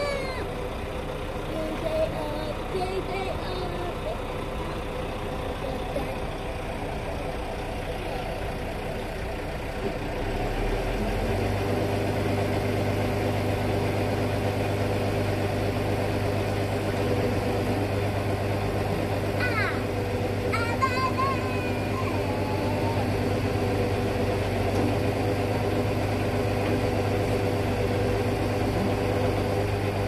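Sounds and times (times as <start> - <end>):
diesel engine idling and revving: 0.0 - 30.0.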